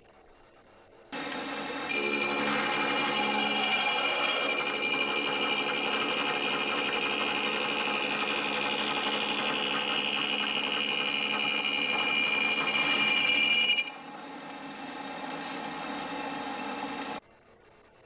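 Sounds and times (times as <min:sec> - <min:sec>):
spindle hum: 0:00.0 - 0:14.8
milling cutter high ringing tone: 0:01.2 - 0:14.0.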